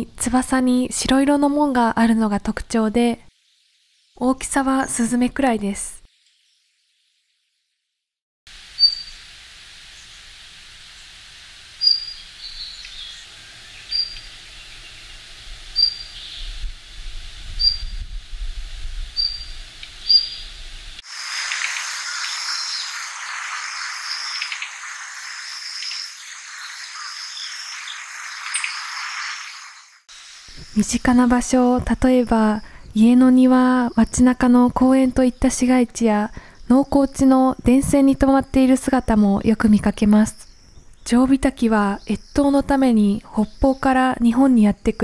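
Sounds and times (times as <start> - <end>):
insects chirring: 8.5 - 45.0
bird calling high notes: 8.8 - 9.2.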